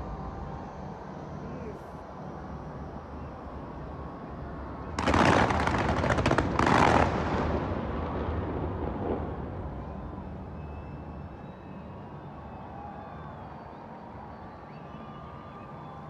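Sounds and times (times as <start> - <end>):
fireworks crackling: 4.9 - 9.8.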